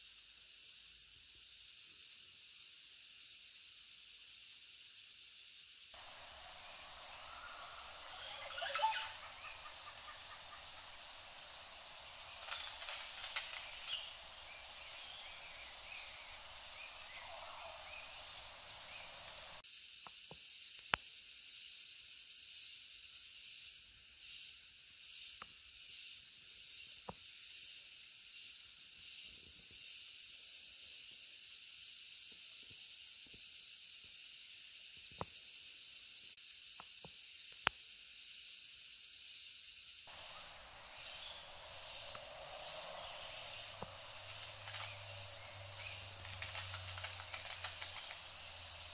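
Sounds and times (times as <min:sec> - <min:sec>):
forest stream running: 0:06.0 - 0:19.6, 0:40.1 - 0:48.9
sharp clicks: 0:43.5 - 0:48.9.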